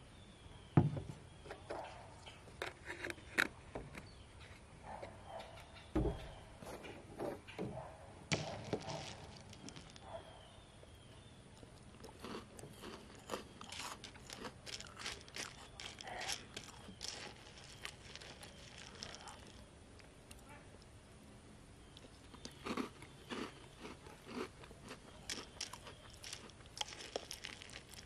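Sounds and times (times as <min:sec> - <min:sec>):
chewing crunchy cereal: 0:08.6 - 0:10.2, 0:11.6 - 0:19.7, 0:22.0 - 0:28.0.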